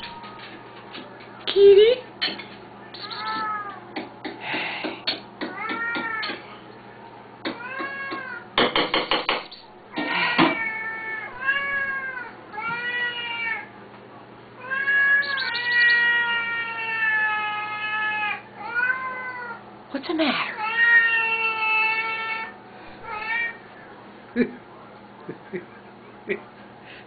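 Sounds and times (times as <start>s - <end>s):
cats meowing: 2.9s - 4.0s, 5.4s - 6.6s, 7.5s - 8.6s, 9.5s - 13.8s, 14.6s - 19.6s, 20.5s - 23.7s.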